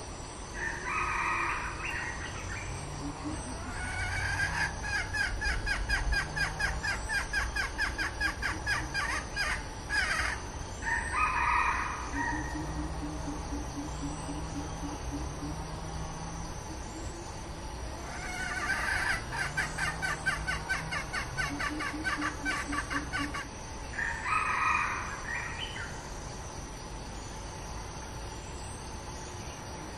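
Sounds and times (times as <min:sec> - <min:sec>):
hen clucking rapidly: 0:18.1 - 0:23.5.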